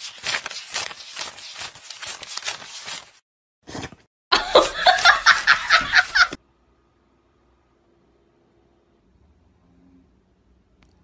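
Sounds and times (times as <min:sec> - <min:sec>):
person laughing loudly: 0:04.3 - 0:06.4.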